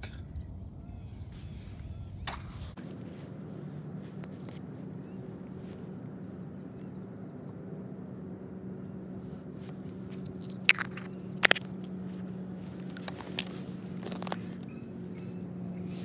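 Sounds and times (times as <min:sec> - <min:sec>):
steady low hum: 0:00.0 - 0:16.0
ice crunching: 0:10.0 - 0:14.6.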